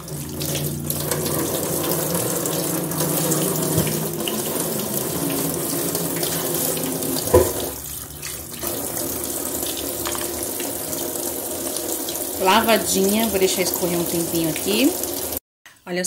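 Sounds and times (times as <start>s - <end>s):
tap running into metal sink: 0.0s - 11.0s.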